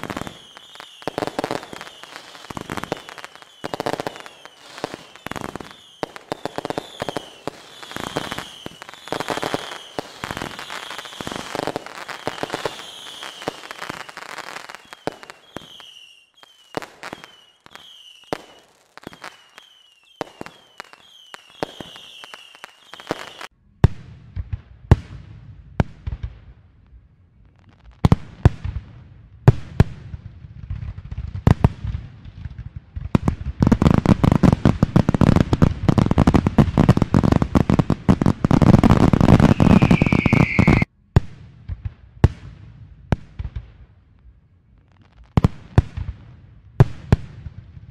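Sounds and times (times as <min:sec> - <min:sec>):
high firework chirps: 0:00.0 - 0:23.5, 0:38.7 - 0:40.9
fireworks popping and crackling: 0:00.0 - 0:44.2, 0:44.8 - 0:47.9.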